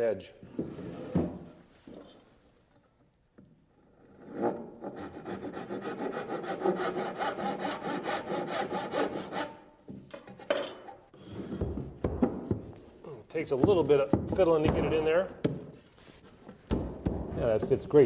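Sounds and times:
handsaw cutting wood: 4.8 - 9.6.

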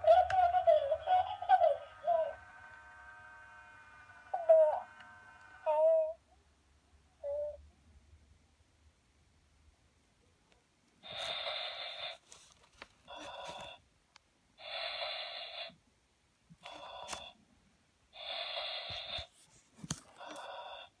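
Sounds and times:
doll electronic baby breathing: 0.0 - 2.5, 11.0 - 13.8, 14.6 - 15.8, 16.6 - 17.4, 18.2 - 19.4, 20.0 - 21.0.

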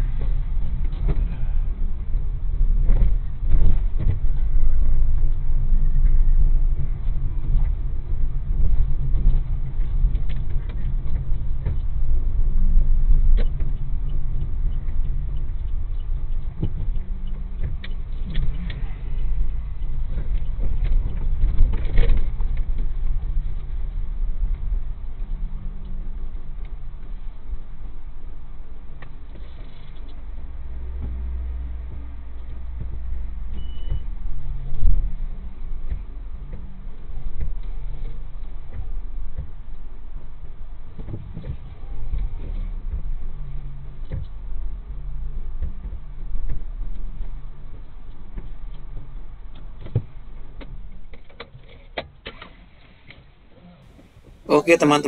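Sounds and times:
car engine rumbling low: 0.0 - 55.0.

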